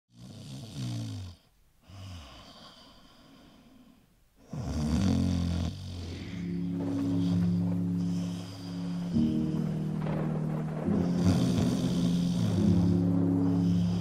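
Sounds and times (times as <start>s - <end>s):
man snoring: 0.1s - 3.6s, 4.4s - 6.6s, 11.2s - 12.9s
music: 6.0s - 14.0s.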